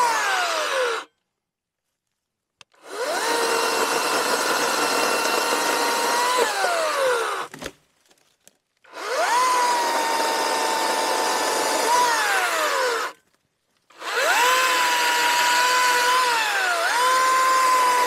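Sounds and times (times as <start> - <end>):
electric chainsaw whining: 0.0 - 1.1, 2.8 - 7.5, 8.9 - 13.2, 13.9 - 18.0.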